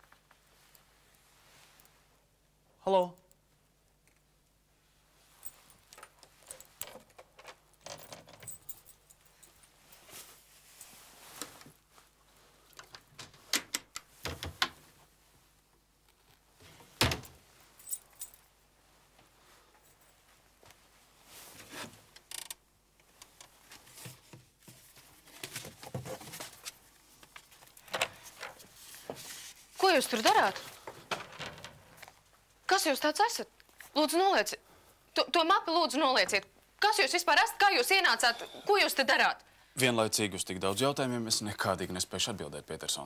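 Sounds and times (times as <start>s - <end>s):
clicks rattles and rustles: 5.9s - 9.6s, 29.9s - 32.4s.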